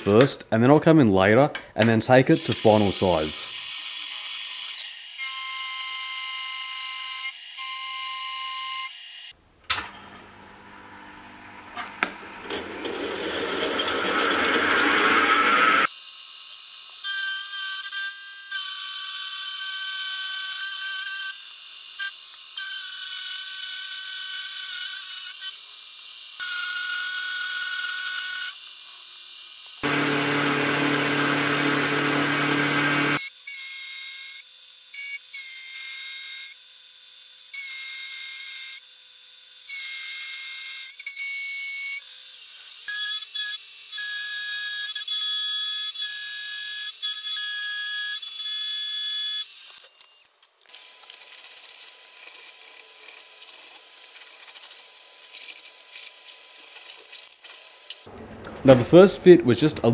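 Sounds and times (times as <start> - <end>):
end mill cutting steel whine: 9.9 - 15.9, 29.8 - 33.2.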